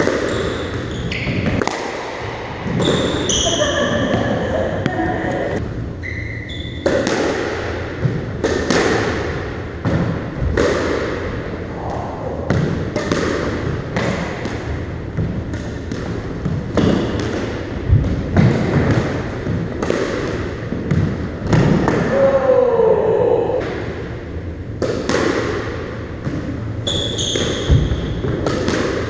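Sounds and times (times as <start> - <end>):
squash ball cracking off rackets: 0.0 - 3.3, 6.8 - 11.3, 24.8 - 26.6, 27.2 - 29.0.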